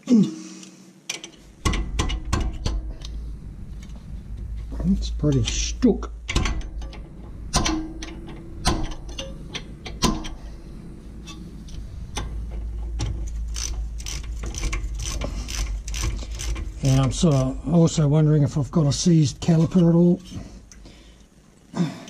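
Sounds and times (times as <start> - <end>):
metal knocks: 6.3 - 10.5
ratchet wrench clicking: 13.5 - 17.5.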